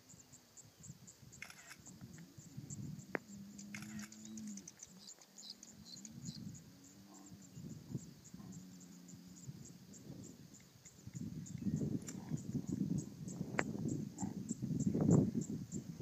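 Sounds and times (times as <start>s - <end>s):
faint high chirping: 0.0s - 15.9s
low drawn-out animal calls: 1.4s - 9.7s.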